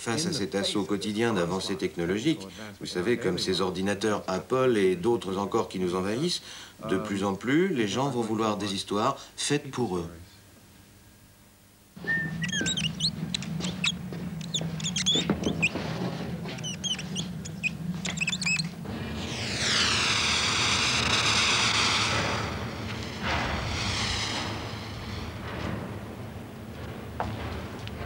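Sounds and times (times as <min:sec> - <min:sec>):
squeaky chirps: 0:12.0 - 0:15.8, 0:16.5 - 0:18.8
smoke machine hissing: 0:12.0 - 0:26.8
low hum: 0:12.0 - 0:28.0.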